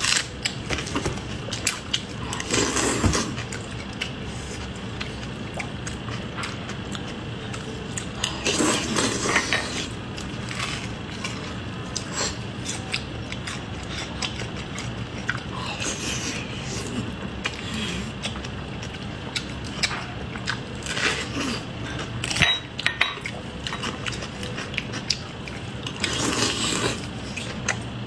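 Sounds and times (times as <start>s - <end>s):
wet chewing: 23.2s - 28.0s.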